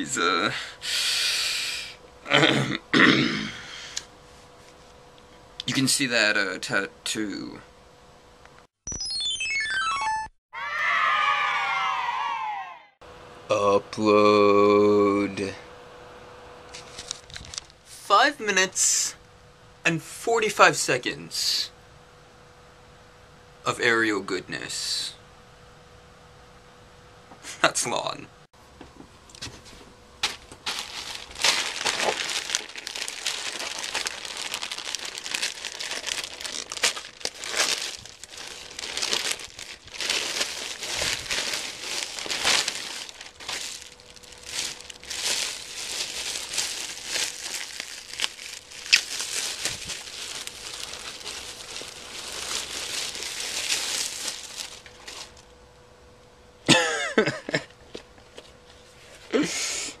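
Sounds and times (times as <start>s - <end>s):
plastic bag crinkling: 16.8s - 17.8s, 30.2s - 55.4s.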